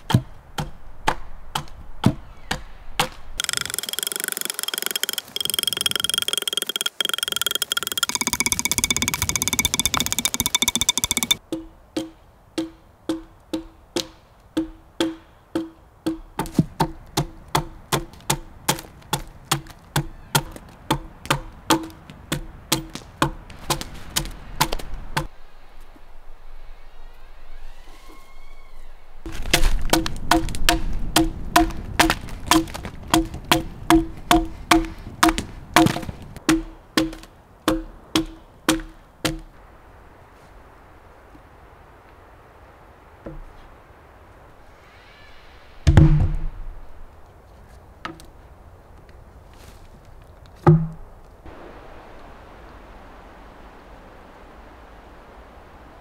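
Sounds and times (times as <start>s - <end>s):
axe chopping into log: 29.3s - 39.5s.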